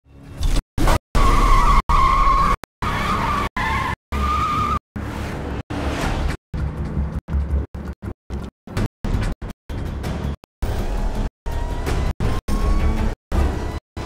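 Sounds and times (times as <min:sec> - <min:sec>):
car tyres squealing: 0:01.2 - 0:05.5.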